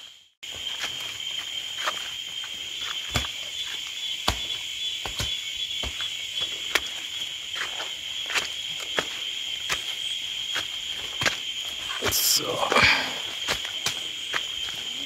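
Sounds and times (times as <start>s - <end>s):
insect chorus buzzing: 0.0s - 15.0s
footsteps on leaf litter: 5.9s - 15.0s
twigs snapping: 13.4s - 14.5s.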